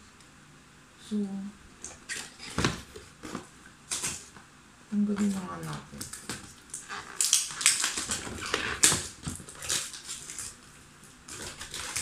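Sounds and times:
paper and cardboard rustling: 0:05.2 - 0:12.0.

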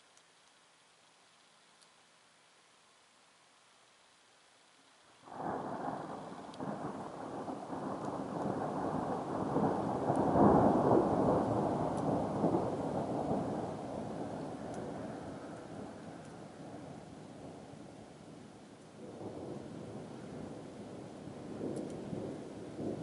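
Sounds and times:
deep thunder rumble: 0:05.3 - 0:17.6, 0:19.0 - 0:23.0.

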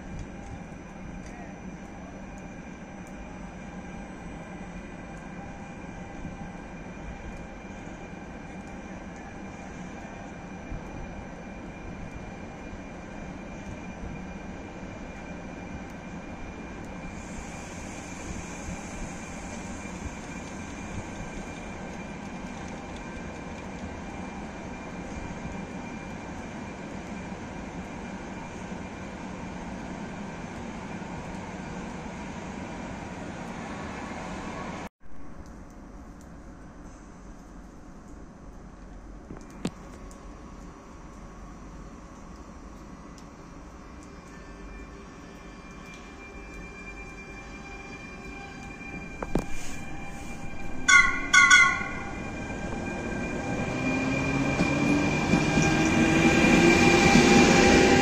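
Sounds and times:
electric locomotive droning: 0:00.0 - 0:34.9, 0:43.4 - 0:58.0
train rumble: 0:00.0 - 0:58.0.

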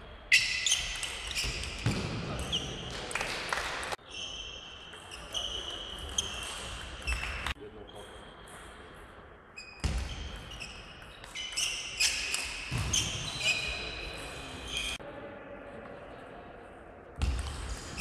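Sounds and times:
shoe squeaks on floor: 0:00.3 - 0:02.9, 0:04.0 - 0:08.0, 0:09.6 - 0:15.0.

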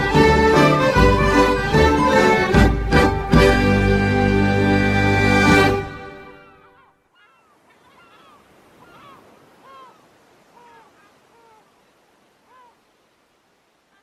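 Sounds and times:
gulls crying: 0:00.0 - 0:12.9
wind and sea hiss: 0:07.1 - 0:14.0.

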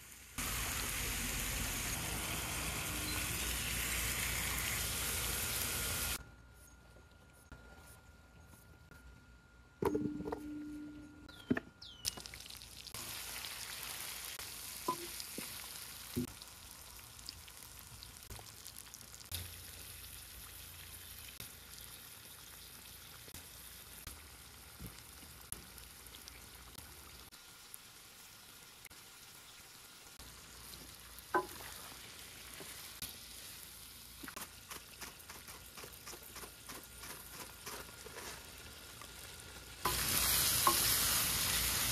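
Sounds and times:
meat sizzling in a pan: 0:00.0 - 0:06.2, 0:12.6 - 0:36.2, 0:37.0 - 0:41.9.

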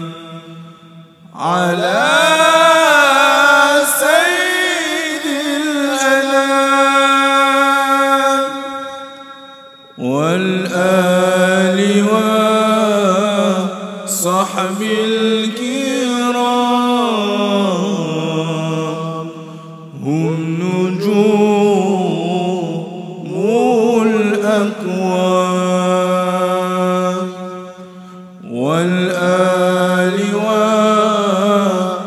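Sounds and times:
person chanting melismatic phrases: 0:01.3 - 0:08.7.

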